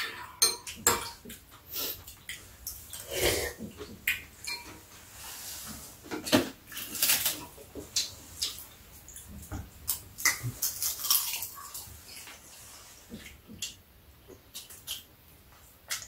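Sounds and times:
utensils clinking against bowls: 0.0s - 1.3s, 4.4s - 4.8s.

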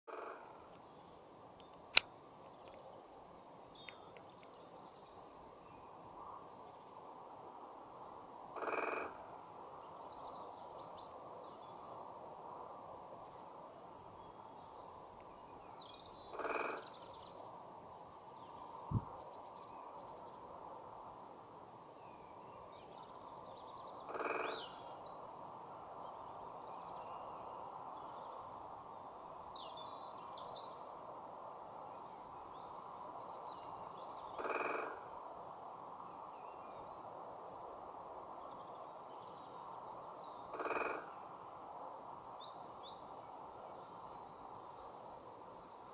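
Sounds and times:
woodpecker drumming on tree trunk: 0.1s - 0.5s, 34.4s - 35.0s, 40.5s - 41.1s
small birds calling faintly: 0.1s - 7.0s.

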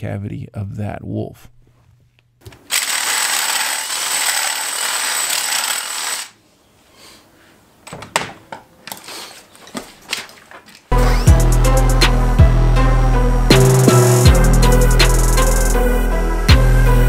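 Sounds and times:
cordless drill boring into bone: 2.7s - 6.4s
tools set down on concrete: 7.8s - 10.9s.

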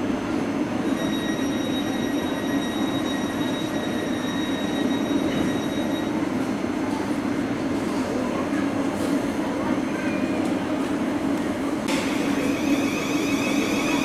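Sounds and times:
train rumble: 0.0s - 14.0s.

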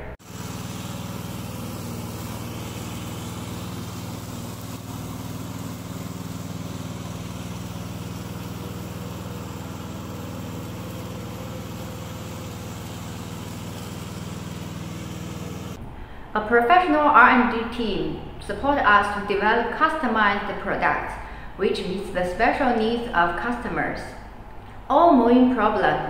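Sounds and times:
mower engine running: 0.0s - 15.8s.

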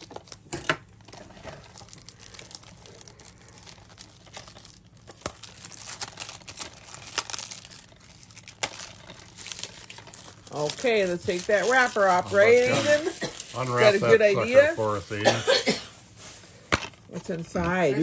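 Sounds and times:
plastic shrink-wrap crinkling: 0.0s - 15.2s.

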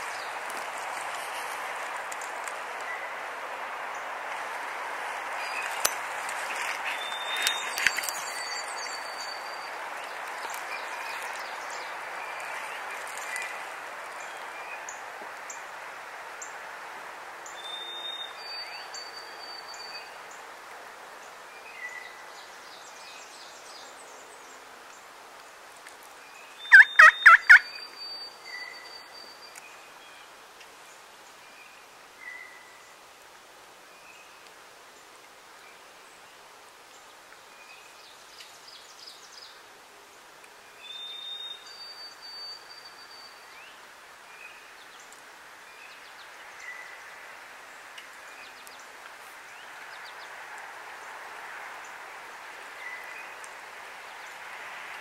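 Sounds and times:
songbirds chirping: 0.0s - 55.0s
turkey gobbling: 26.7s - 27.6s.

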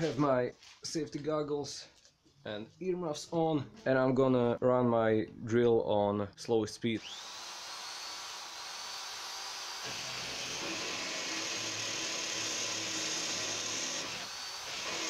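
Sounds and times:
electric drill drilling sheet steel: 7.0s - 15.0s.

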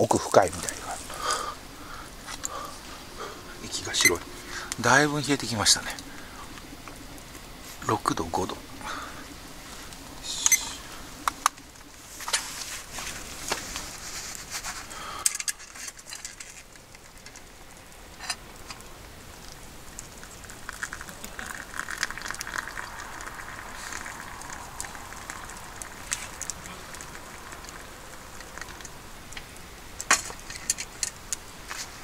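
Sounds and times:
wood fire crackling: 0.0s - 32.0s
water pouring into a cup: 18.9s - 29.3s.

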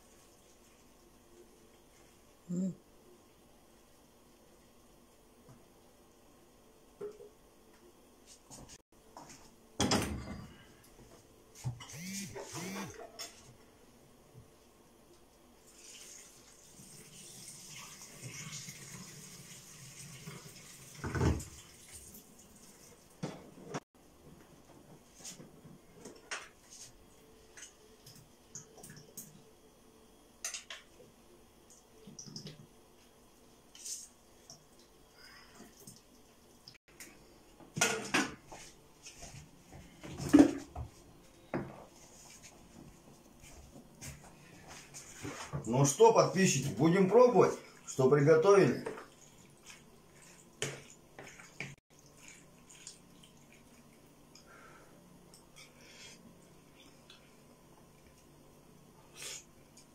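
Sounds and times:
water splashing into sink: 15.7s - 23.3s.

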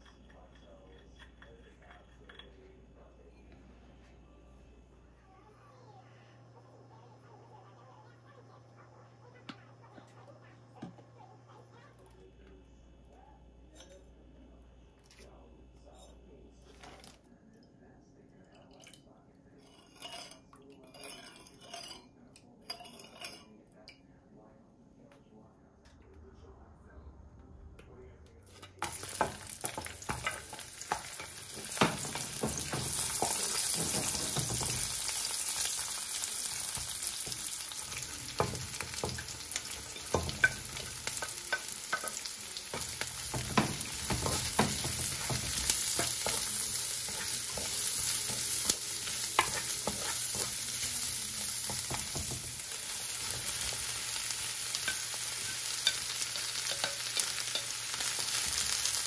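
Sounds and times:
vegetables sizzling in oil: 28.8s - 59.0s.

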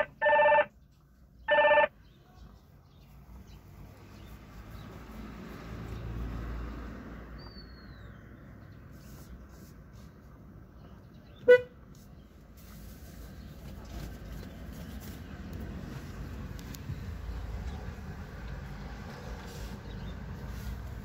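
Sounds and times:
electronic ringing tone: 0.0s - 0.7s, 1.5s - 1.9s
car engine and road noise: 0.0s - 21.0s
bird chirp: 7.3s - 9.5s.

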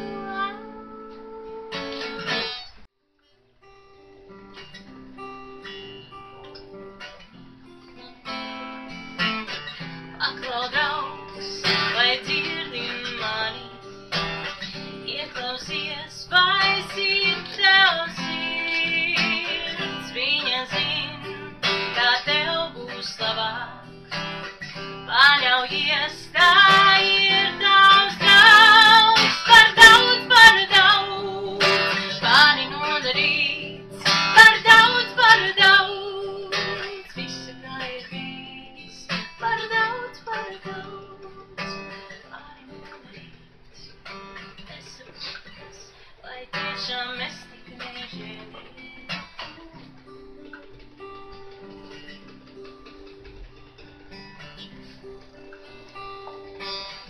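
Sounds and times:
woman singing: 0.0s - 2.4s, 9.9s - 24.2s, 25.0s - 50.5s
acoustic guitar: 0.0s - 57.0s.

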